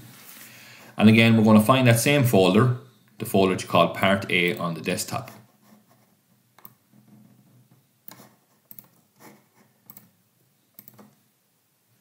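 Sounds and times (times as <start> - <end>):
computer mouse clicks: 6.6 - 6.8, 8.0 - 9.0, 9.8 - 10.1, 10.7 - 11.2.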